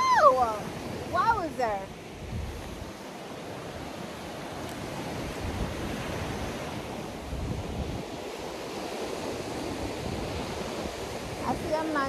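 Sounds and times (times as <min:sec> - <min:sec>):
sea waves washing onto shore: 0:00.0 - 0:12.0
wind gusting on microphone: 0:00.0 - 0:12.0.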